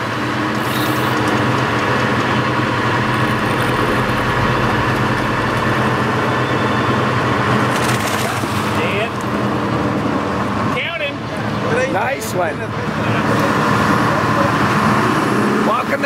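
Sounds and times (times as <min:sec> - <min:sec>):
boat engine humming: 0:00.8 - 0:10.6.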